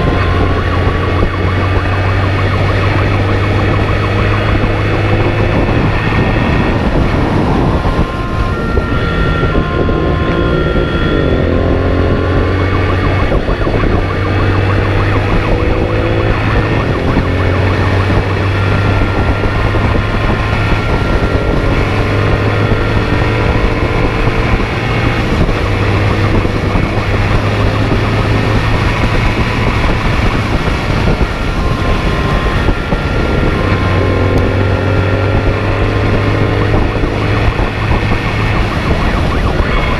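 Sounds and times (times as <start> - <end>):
motorcycle engine revving: 0.0 - 39.9
wind and road noise: 0.0 - 39.9.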